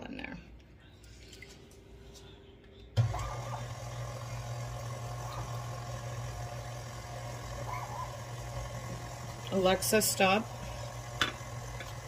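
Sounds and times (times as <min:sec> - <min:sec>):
mixer motor humming: 0:03.0 - 0:12.0.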